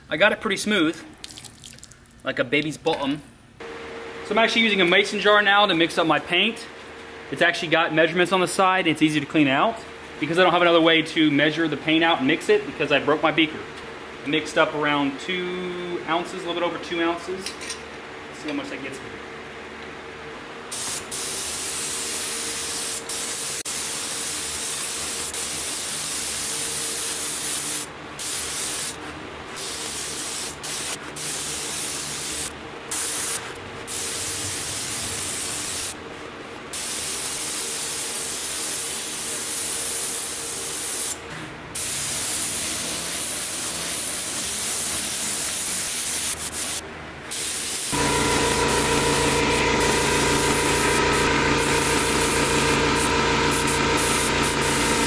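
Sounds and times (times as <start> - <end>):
paint spray gun hissing: 20.8 - 29.0, 29.6 - 36.0, 36.8 - 41.2, 41.8 - 55.0.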